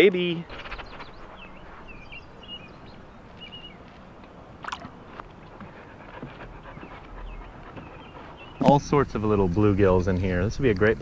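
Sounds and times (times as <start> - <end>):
bird chirps: 0.3 - 4.0, 6.5 - 8.8.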